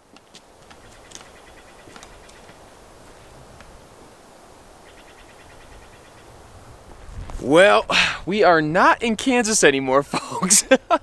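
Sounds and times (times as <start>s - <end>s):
steady outdoor hiss: 0.0s - 11.0s.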